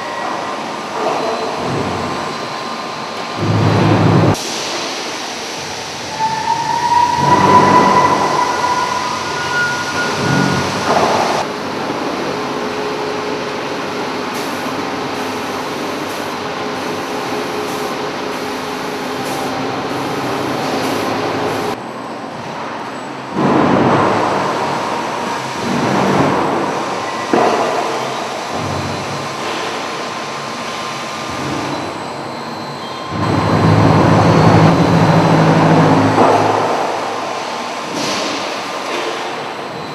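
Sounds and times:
industrial machinery running: 0:00.0 - 0:39.9
high metallic squeal: 0:06.1 - 0:11.4, 0:31.6 - 0:36.1.

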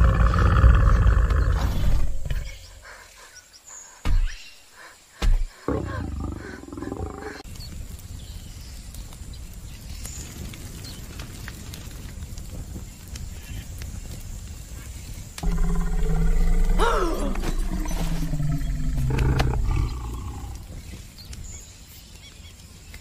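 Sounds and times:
dinosaur growling: 0:00.0 - 0:02.7, 0:05.7 - 0:07.4, 0:15.4 - 0:20.7.

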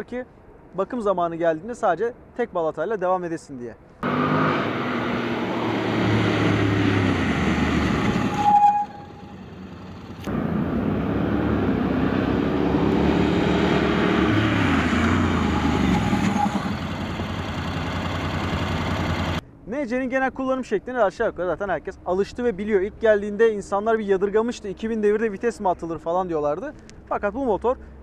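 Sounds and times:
brake squeal: 0:04.0 - 0:13.0, 0:13.6 - 0:19.4
motorcycle engine running: 0:16.5 - 0:19.4.

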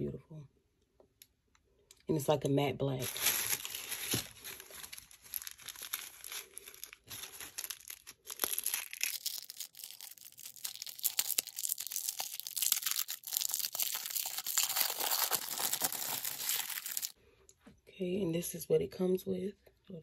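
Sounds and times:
plastic bag crinkling: 0:03.0 - 0:17.2.

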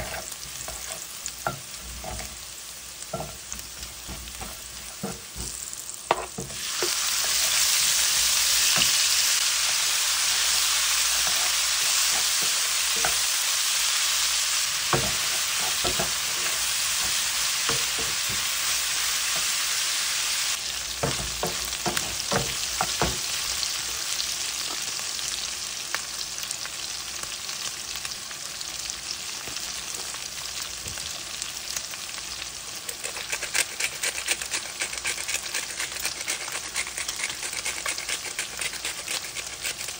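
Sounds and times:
meat sizzling in hot oil: 0:00.0 - 0:39.9
wooden spatula knocking on pan: 0:14.9 - 0:16.2, 0:21.0 - 0:23.3.

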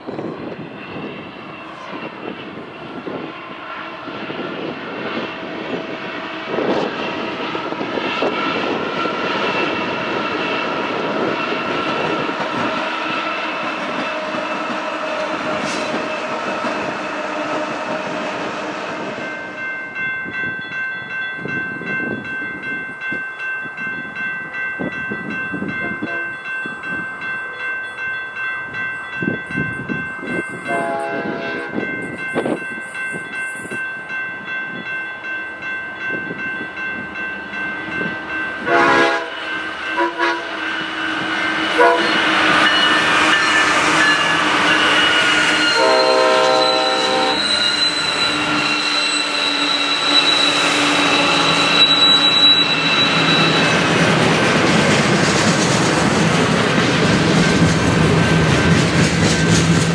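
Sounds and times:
crossing warning bell ringing: 0:00.0 - 0:17.1, 0:18.7 - 0:59.9
freight cars rolling on rails: 0:00.0 - 0:59.9
locomotive horn blasts: 0:26.0 - 0:26.4, 0:30.6 - 0:31.8, 0:38.6 - 0:47.7.

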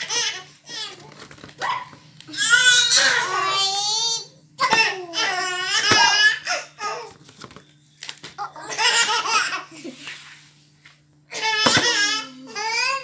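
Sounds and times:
baby laughing: 0:08.6 - 0:10.0.

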